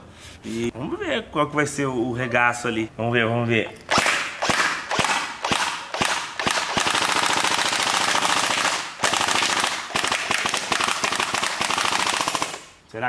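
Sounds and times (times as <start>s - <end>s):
airsoft rifle firing: 3.9s - 12.8s.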